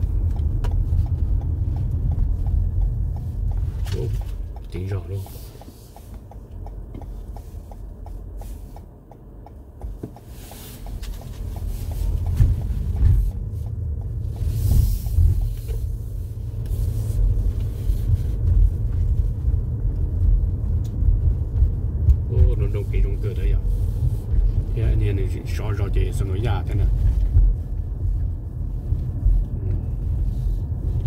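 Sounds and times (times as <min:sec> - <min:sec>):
faint regular ticking: 0:00.0 - 0:17.7
car driving rumble: 0:00.0 - 0:31.0.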